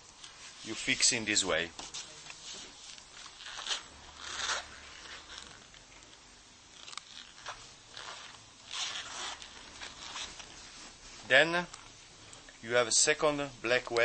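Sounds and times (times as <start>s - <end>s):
webbing strap rasping through buckle: 1.8s - 11.0s.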